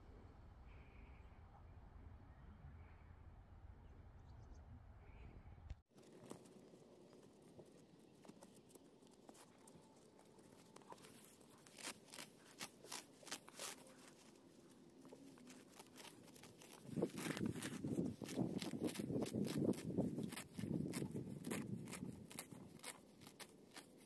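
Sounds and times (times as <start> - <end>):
faint rustling of weeds: 6.0 - 24.0.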